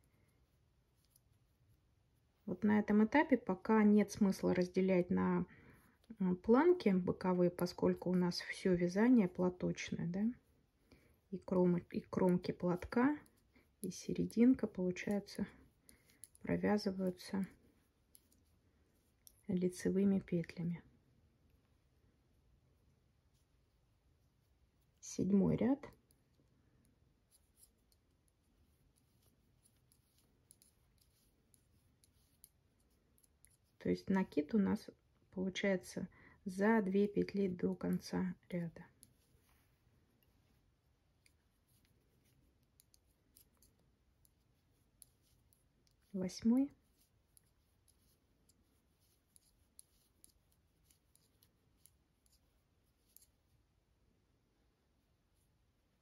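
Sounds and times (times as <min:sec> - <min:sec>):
knitting needles clicking: 0:01.0 - 0:01.4, 0:11.0 - 0:18.5, 0:19.1 - 0:20.6, 0:25.8 - 0:34.5, 0:36.7 - 0:53.4.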